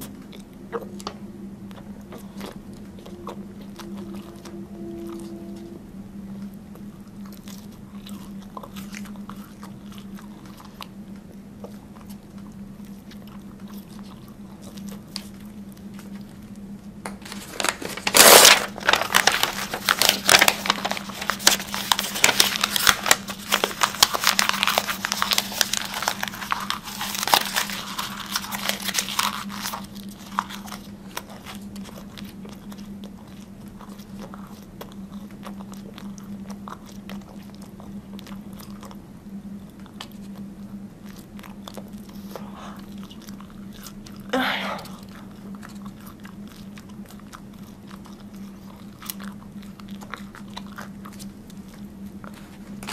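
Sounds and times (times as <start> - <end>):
crunchy food chewing: 0.0 - 52.9
steady low hum: 0.0 - 52.9.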